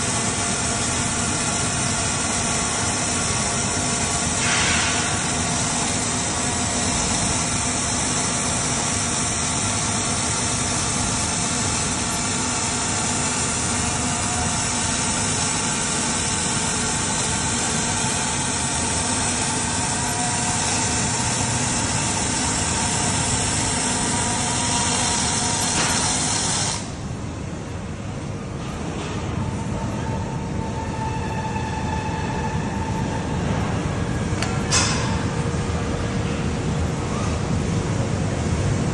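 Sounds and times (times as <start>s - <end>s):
welding arc hissing: 0.0s - 27.0s
factory background noise: 0.0s - 38.9s.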